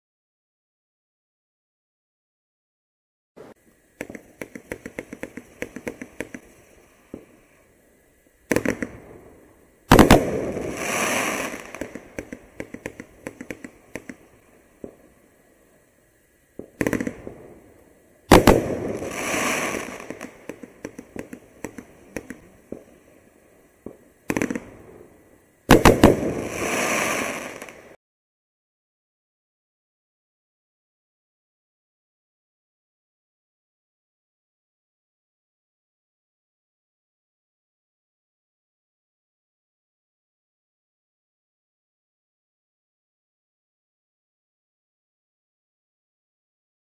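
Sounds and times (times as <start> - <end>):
firework rushing bursts: 3.4 - 15.3, 16.5 - 28.0
firework crackling: 3.4 - 28.0
firework launch reports: 9.9 - 15.0, 18.2 - 23.2, 23.8 - 28.0.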